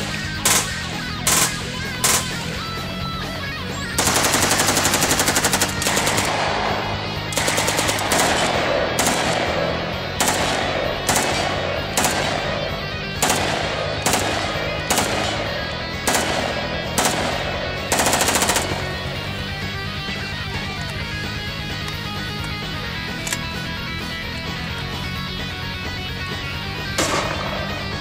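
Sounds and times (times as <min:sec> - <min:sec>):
automatic rifle firing: 0:00.0 - 0:02.9, 0:04.0 - 0:19.4, 0:26.9 - 0:28.0
background music: 0:00.0 - 0:28.0.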